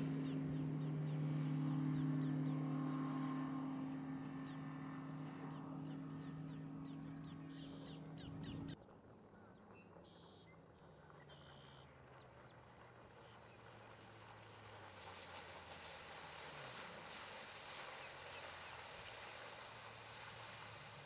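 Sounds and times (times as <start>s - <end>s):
birds calling: 0.0s - 8.8s
distant outboard motor drone: 0.0s - 21.0s
faint low engine hum: 0.0s - 21.0s.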